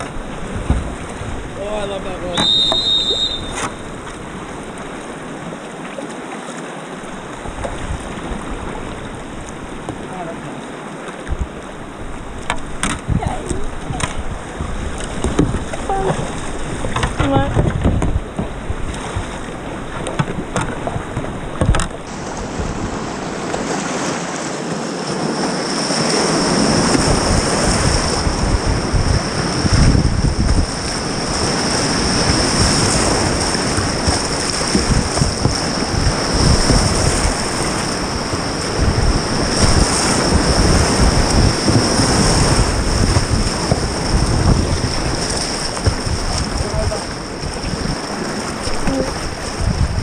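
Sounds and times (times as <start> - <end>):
wind buffeting microphone: 0.0 - 5.3, 11.2 - 23.8, 25.9 - 50.0
whitewater rapids rushing: 22.0 - 50.0.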